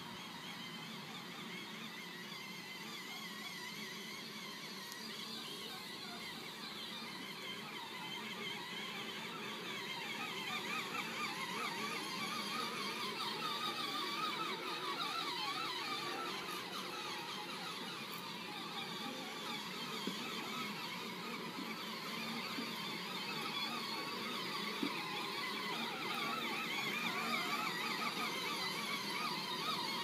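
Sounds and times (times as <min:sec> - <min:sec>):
electric toy motors whining: 0:00.0 - 0:30.0.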